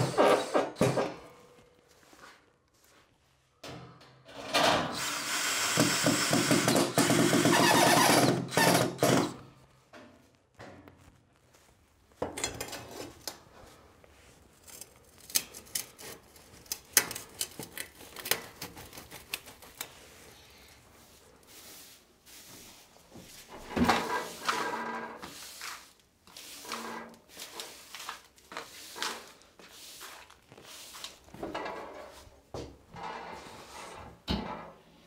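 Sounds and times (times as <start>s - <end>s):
cordless drill running: 5.0s - 9.4s.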